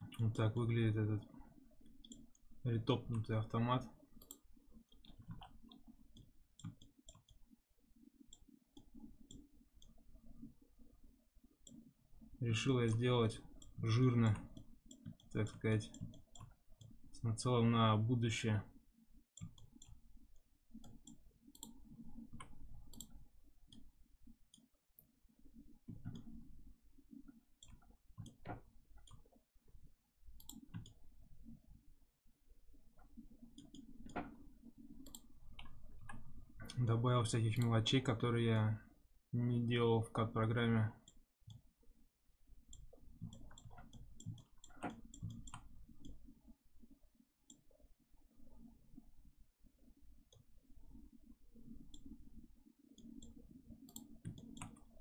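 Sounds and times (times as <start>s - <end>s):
computer mouse clicking: 1.2s - 3.4s, 4.2s - 7.5s, 8.3s - 10.6s, 11.6s - 11.9s, 12.6s - 17.1s, 19.3s - 31.6s, 33.0s - 37.9s, 41.0s - 41.7s, 42.7s - 46.4s, 50.3s - 55.0s.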